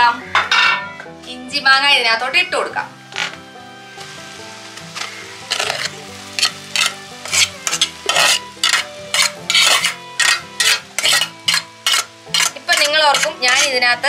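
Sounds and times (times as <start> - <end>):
background music: 0.0 - 14.0
metal spoon scraping a pot: 4.9 - 13.9.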